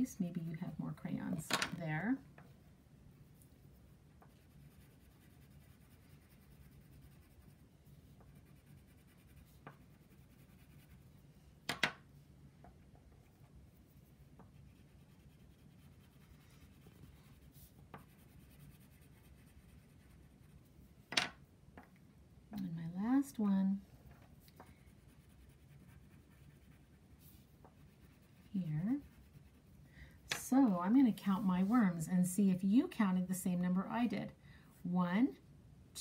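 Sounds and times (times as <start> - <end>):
crayon scratching on paper: 4.3 - 11.1, 14.0 - 20.6, 24.9 - 29.7.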